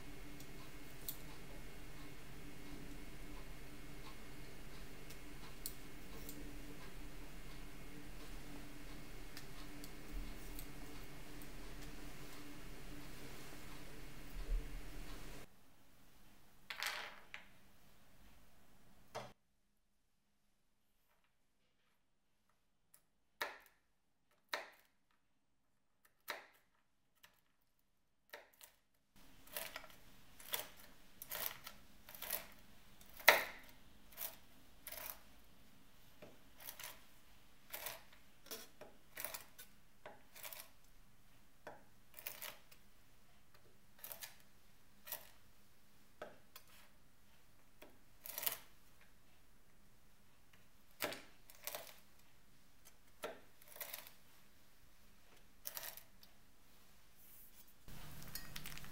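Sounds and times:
knife chopping nuts on wooden board: 29.4s - 35.2s.

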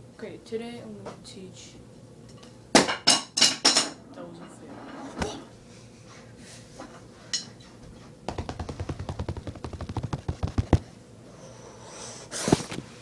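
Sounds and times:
sharp knock: 8.3s - 10.8s
drumsticks tapping fast roll: 8.3s - 10.9s.

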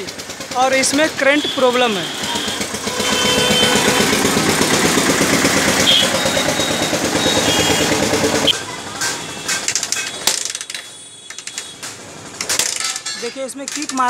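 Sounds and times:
engine running: 0.0s - 9.5s.

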